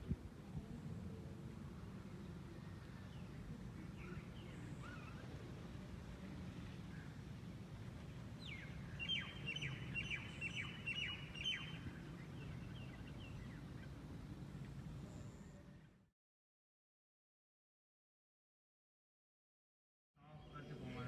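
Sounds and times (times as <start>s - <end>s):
bird chirping: 8.4s - 14.0s.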